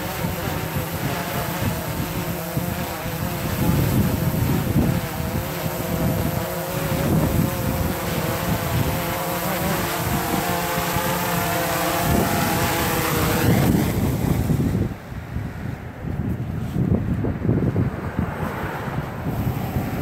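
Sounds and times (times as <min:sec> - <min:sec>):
drone propellers buzzing: 0:00.0 - 0:15.2
wind rumbling on microphone: 0:00.0 - 0:20.0.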